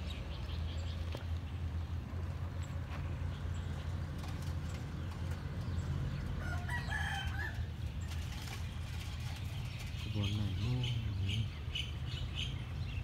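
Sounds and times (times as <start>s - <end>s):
small birds chirping: 0.0s - 13.0s
rooster crowing: 6.4s - 7.7s.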